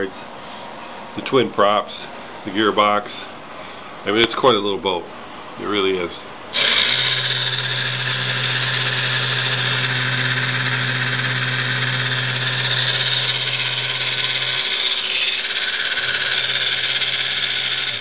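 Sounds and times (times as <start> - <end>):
toy electric motor whirring: 6.6 - 18.0.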